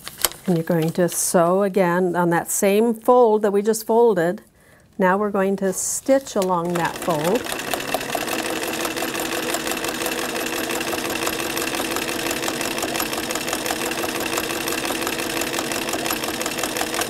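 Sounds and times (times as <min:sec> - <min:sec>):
sewing machine running: 0:06.4 - 0:17.0.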